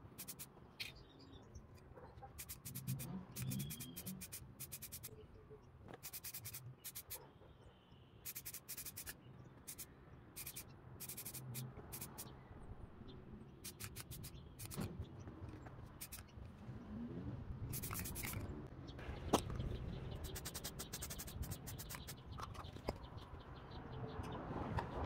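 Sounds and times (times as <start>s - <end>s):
fast scratching strokes: 0.0s - 1.0s, 2.3s - 5.1s, 6.0s - 7.2s, 8.3s - 12.3s, 13.6s - 14.9s, 15.9s - 16.4s, 17.7s - 18.5s, 19.4s - 22.8s.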